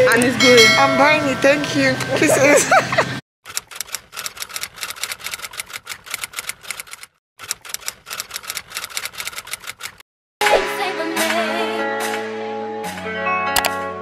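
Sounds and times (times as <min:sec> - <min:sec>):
music: 0:10.4 - 0:14.0.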